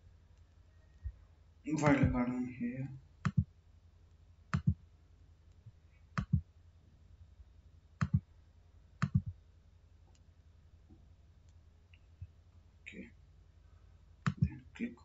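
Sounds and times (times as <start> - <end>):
computer mouse clicking: 3.2 - 3.5, 4.5 - 4.8, 6.2 - 6.4, 8.0 - 8.2, 9.0 - 9.3, 14.2 - 14.6.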